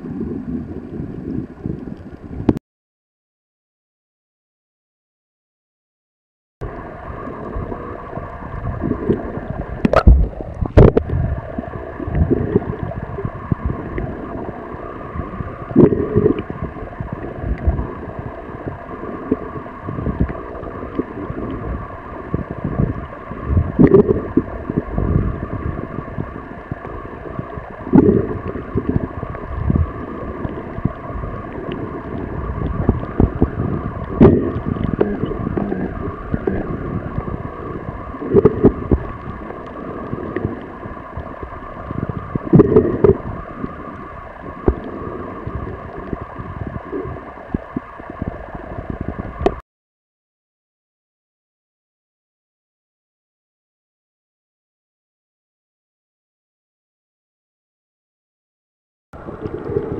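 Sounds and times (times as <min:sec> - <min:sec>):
low water surges: 0:00.0 - 0:02.6, 0:06.6 - 0:49.6, 0:59.2 - 0:59.9
underwater water hiss: 0:11.2 - 0:48.4.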